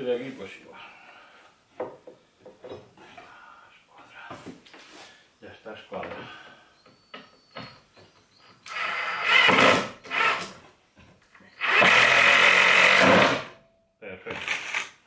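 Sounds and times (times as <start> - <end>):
power drill driving screws: 8.6 - 10.6, 11.5 - 13.6, 14.3 - 15.0.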